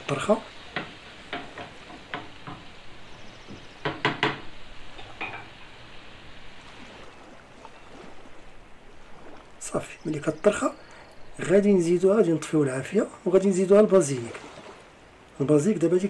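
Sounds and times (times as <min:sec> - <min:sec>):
tomatoes sizzling in a frying pan: 0:00.0 - 0:06.2
wooden spatula knocking against pan: 0:00.7 - 0:02.7, 0:03.5 - 0:05.5.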